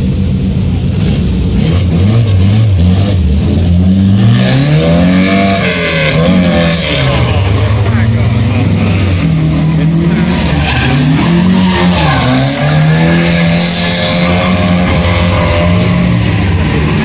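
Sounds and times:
car engine revving hard: 0.9s - 17.0s
tyres squealing on asphalt: 4.5s - 17.0s.

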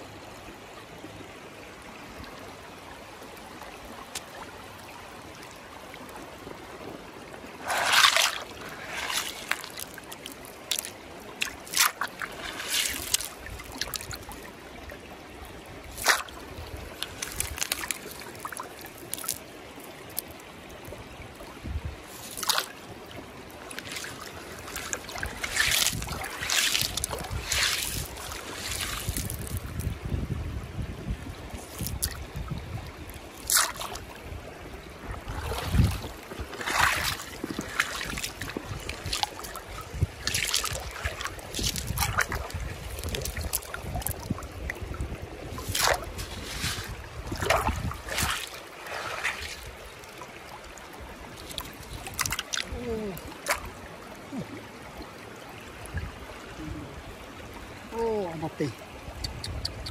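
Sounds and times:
river water splashing: 0.0s - 59.9s
wind rumble on microphone: 21.6s - 22.2s, 25.2s - 33.3s, 34.2s - 48.4s, 59.1s - 59.9s.

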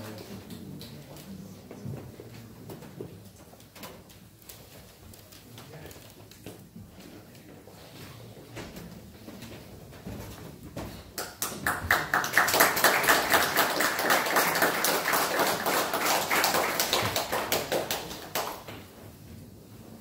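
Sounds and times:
audience applauding: 11.2s - 18.8s.

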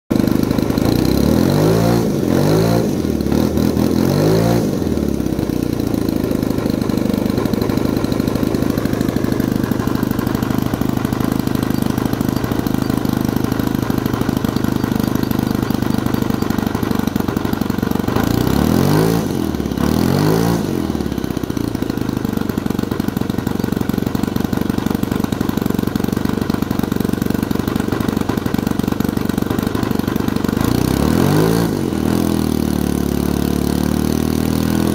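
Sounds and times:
model glow engine running: 0.1s - 1.5s, 4.8s - 20.0s.

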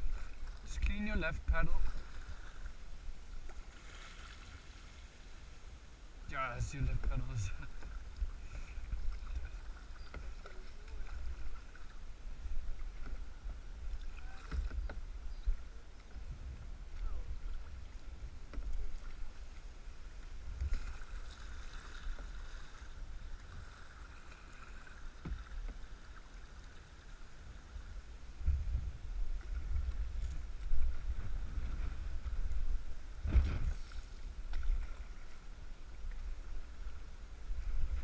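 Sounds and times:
paddle splashing in water: 0.0s - 5.2s, 6.8s - 27.8s, 28.4s - 38.0s
low microphone rumble: 28.4s - 33.8s.

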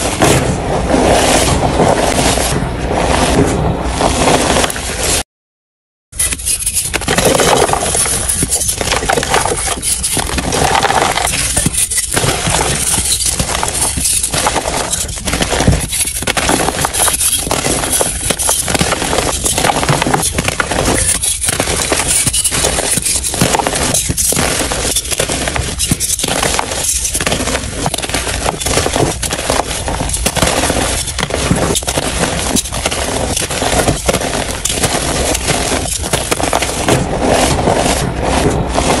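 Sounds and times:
chalk crunching and crumbling: 6.2s - 39.0s.

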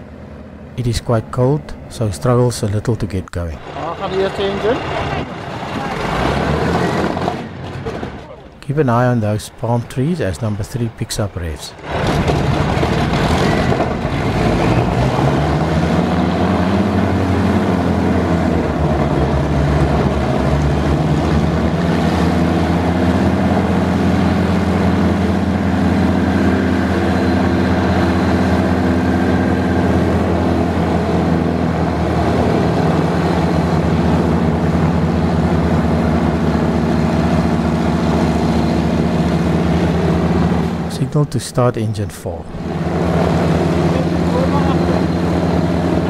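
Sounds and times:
piston aircraft engine running: 11.8s - 41.3s, 42.5s - 46.0s.

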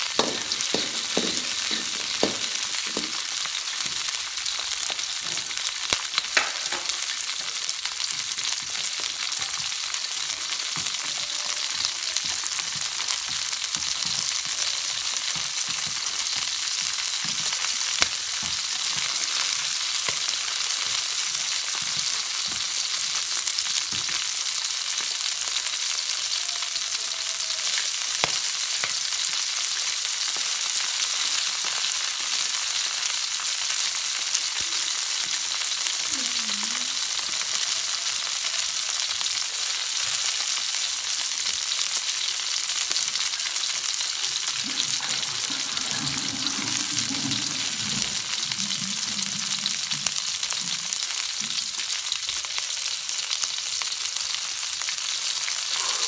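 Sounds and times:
oil popping: 0.0s - 4.0s
food sizzling in oil: 0.0s - 56.0s.

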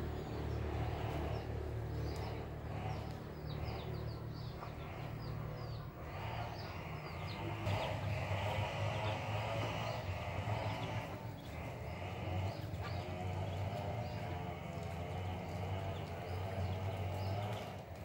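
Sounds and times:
ducklings peeping: 0.0s - 18.0s
steady low hum: 0.0s - 18.0s.

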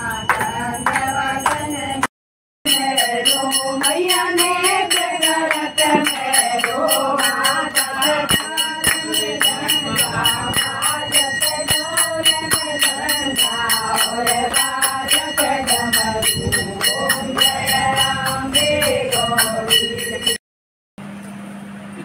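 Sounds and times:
hand bell ringing rapidly: 0.0s - 2.0s, 2.7s - 20.4s
women singing a hymn: 0.0s - 2.1s, 2.7s - 20.4s
hand-clapping in time: 0.2s - 1.7s, 3.7s - 17.8s.

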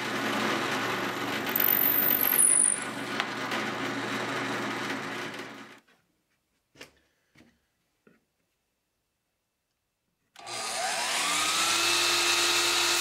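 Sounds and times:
power tool motor hum: 10.4s - 13.0s.

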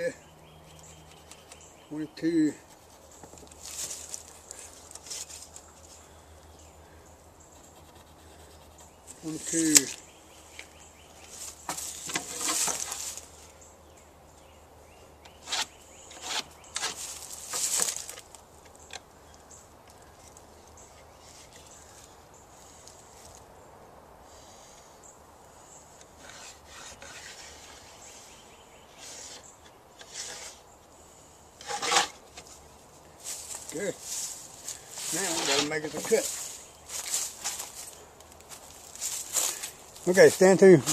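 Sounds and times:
pencil marking lines: 7.6s - 8.9s
level scraping across plywood: 15.4s - 18.1s, 26.0s - 27.9s, 28.9s - 30.6s, 31.6s - 32.5s, 35.0s - 36.4s.

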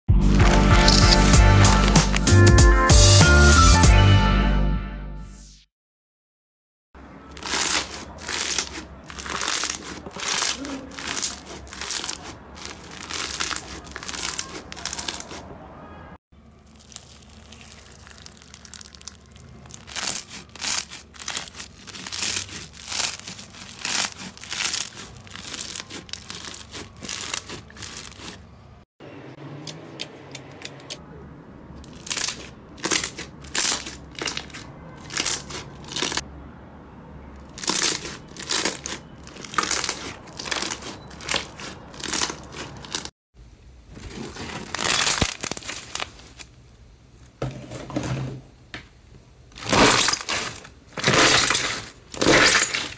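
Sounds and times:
hands squeezing slime squelching: 0.3s - 2.3s, 7.3s - 15.5s, 16.6s - 28.5s, 31.8s - 36.2s, 37.5s - 43.1s, 49.6s - 52.9s.

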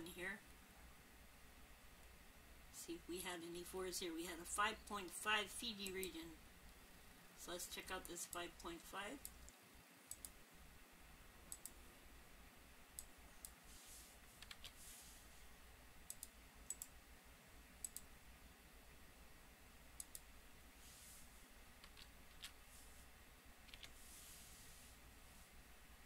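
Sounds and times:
faint computer mouse clicks: 9.2s - 10.4s, 11.5s - 11.8s, 16.1s - 16.9s, 17.8s - 18.1s, 20.0s - 20.3s
soft brushing swishes: 13.6s - 15.5s, 20.8s - 21.5s, 22.6s - 23.1s, 23.9s - 25.6s.

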